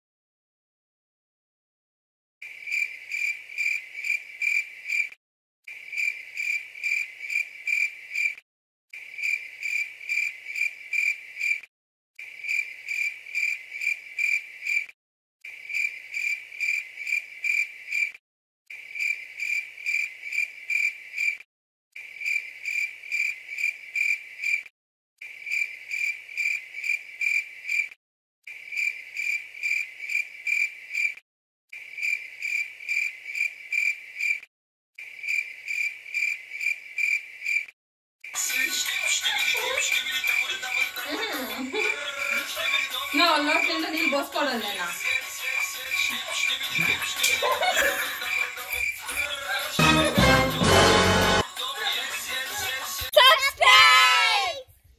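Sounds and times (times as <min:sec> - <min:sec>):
crickets chirping: 0:02.5 - 0:05.1, 0:05.8 - 0:08.4, 0:09.1 - 0:11.6, 0:12.4 - 0:14.8, 0:15.7 - 0:18.1, 0:19.0 - 0:21.4, 0:28.7 - 0:31.2, 0:45.0 - 0:49.3.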